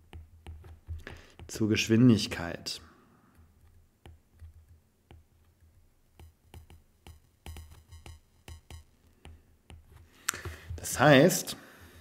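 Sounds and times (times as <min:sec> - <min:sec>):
stylus tapping on glass screen: 0:06.1 - 0:10.8
soft low thumps: 0:06.2 - 0:10.9.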